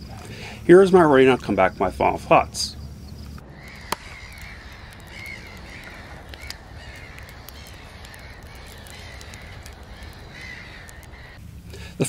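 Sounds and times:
light crackles: 0.0s - 12.0s
low steady hum: 0.0s - 12.0s
crows cawing: 3.4s - 11.9s.

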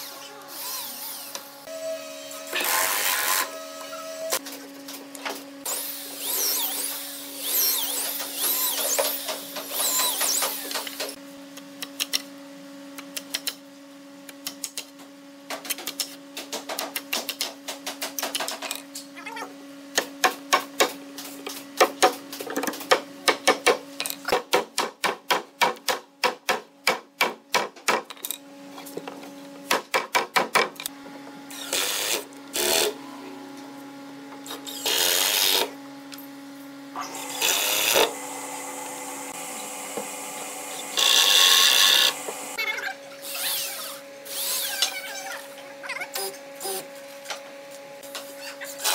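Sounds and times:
electric drill boring into wood: 0.0s - 1.7s, 2.5s - 3.6s, 5.7s - 10.8s, 31.5s - 33.0s, 34.6s - 35.7s, 37.1s - 42.6s
cordless drill: 5.7s - 10.8s, 31.5s - 32.9s, 34.7s - 35.7s, 37.2s - 38.2s, 40.8s - 42.2s.

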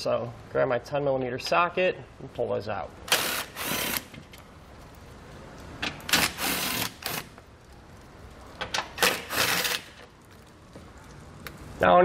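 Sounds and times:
cordless power driver spinning: 3.1s - 4.2s.

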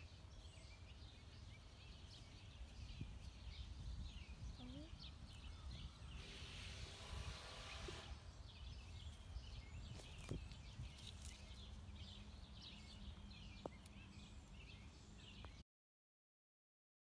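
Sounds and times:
small birds chirping: 0.0s - 15.6s.

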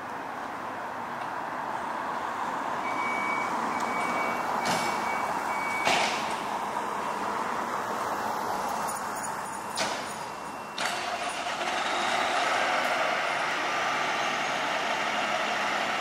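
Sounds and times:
fire engine humming: 0.0s - 16.0s
high electronic warning beep: 2.9s - 5.9s, 9.2s - 12.2s.

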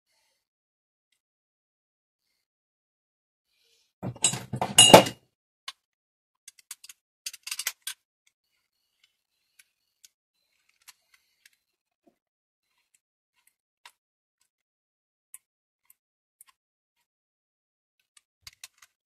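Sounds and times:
pedal parts clattering: 4.0s - 5.2s
small metallic clicks: 6.5s - 8.0s.

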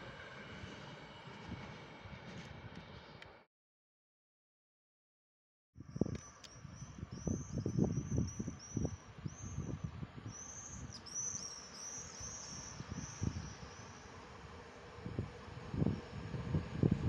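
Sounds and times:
wind buffeting microphone: 5.8s - 17.0s
small bird chirping: 5.9s - 14.0s.

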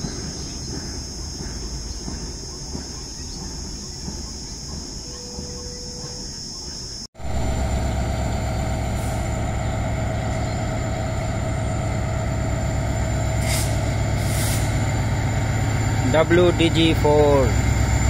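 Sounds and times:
diesel locomotive engine rumble: 0.0s - 18.0s
short air hisses: 13.4s - 14.8s.

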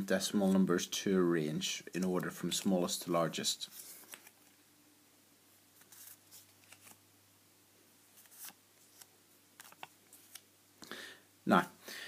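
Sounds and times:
paper cards rustling and tapping: 3.8s - 4.5s, 5.8s - 7.0s, 8.2s - 10.4s.

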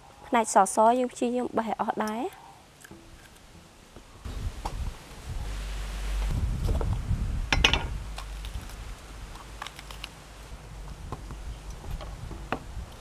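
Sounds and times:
pepper crunching: 8.1s - 10.2s.

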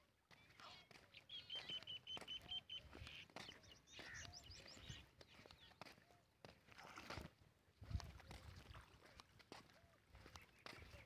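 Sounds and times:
bird calls: 0.3s - 6.3s, 9.6s - 11.0s.

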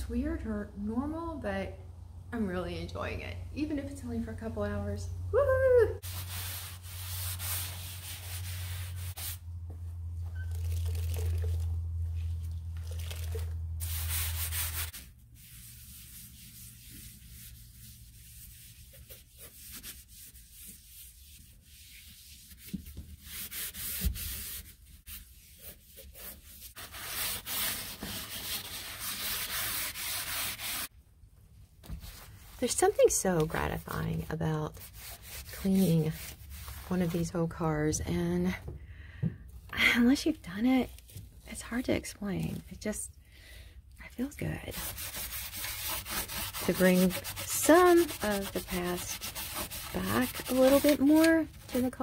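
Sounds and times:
rag rubbing on metal: 44.7s - 52.0s.

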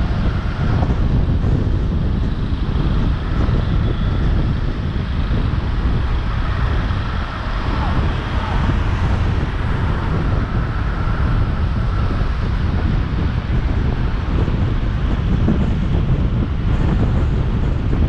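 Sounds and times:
car road noise: 0.0s - 18.0s
wind buffeting microphone: 0.0s - 18.0s.

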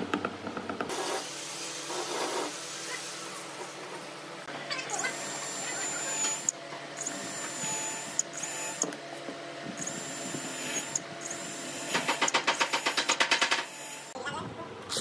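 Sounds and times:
cordless drill whining: 5.2s - 8.9s, 9.8s - 13.0s.

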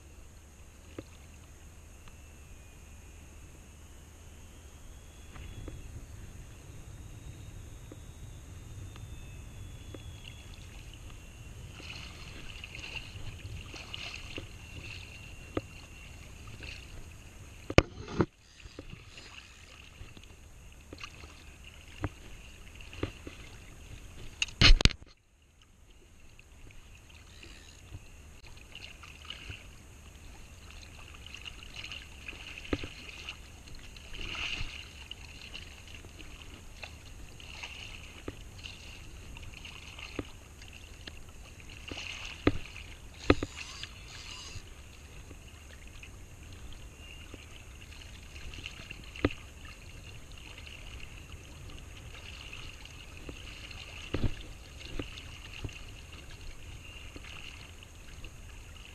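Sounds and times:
water splashing and lapping: 10.0s - 58.9s
fishing reel clicks and knocks: 43.2s - 44.6s.

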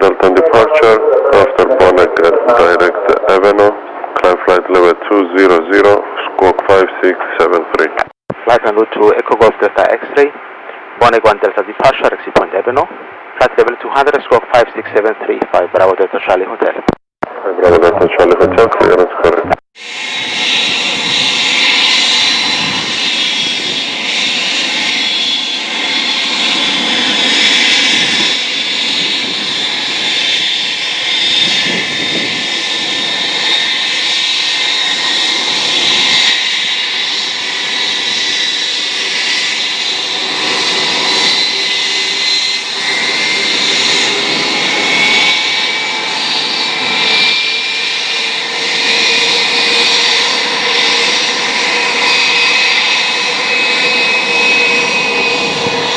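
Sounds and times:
jet engines whining: 17.3s - 55.9s
jet engine spooling up: 19.8s - 55.9s.

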